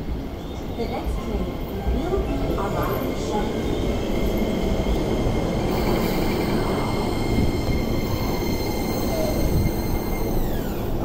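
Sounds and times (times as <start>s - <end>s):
train wheels rumbling on rail: 0.0s - 11.0s
train motor whining tones: 7.4s - 11.0s.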